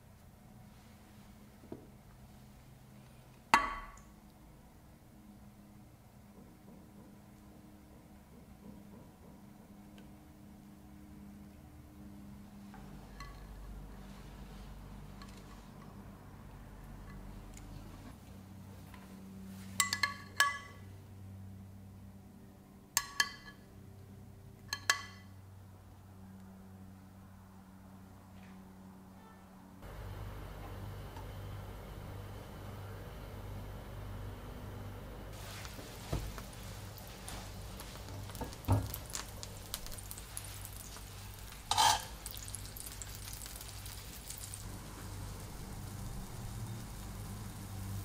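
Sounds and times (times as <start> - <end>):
butter sizzling in a skillet: 35.4 - 48.0.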